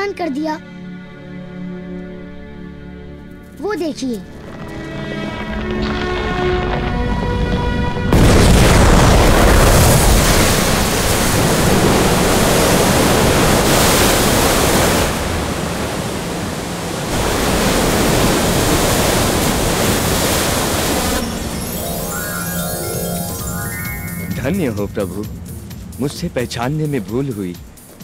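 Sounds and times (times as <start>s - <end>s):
loud rushing flood water: 8.2s - 22.5s.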